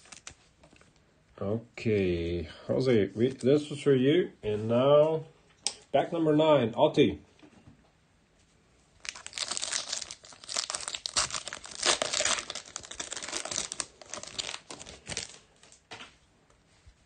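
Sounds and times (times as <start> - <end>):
foil pack crinkling: 0.0 - 0.5, 9.0 - 15.8.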